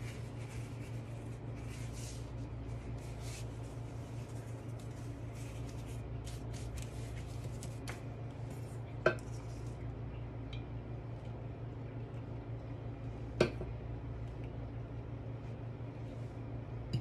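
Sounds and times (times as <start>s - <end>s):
pastry sheets rustling: 0.0s - 9.8s
steady low hum: 0.0s - 17.0s.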